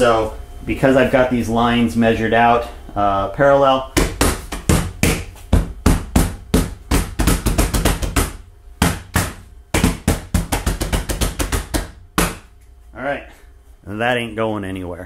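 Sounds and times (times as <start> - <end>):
hand pounding wooden board: 4.0 - 12.5.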